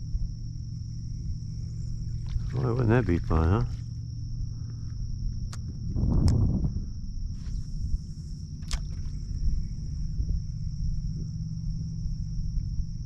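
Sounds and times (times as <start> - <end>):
insects droning: 0.0 - 13.0
wind on microphone: 5.6 - 8.2, 8.9 - 11.3.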